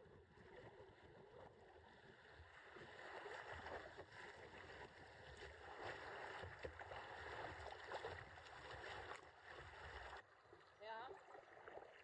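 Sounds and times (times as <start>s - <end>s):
small splashes against hull: 2.9s - 10.7s.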